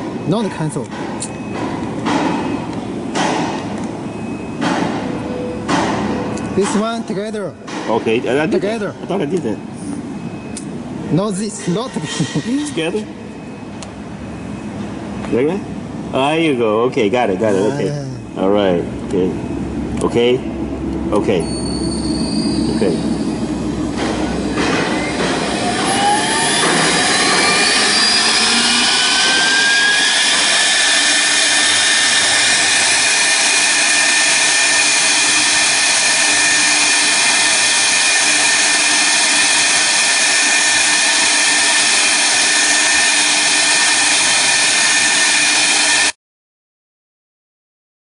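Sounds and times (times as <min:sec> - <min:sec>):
router spindle whine: 0:21.9 - 0:46.2.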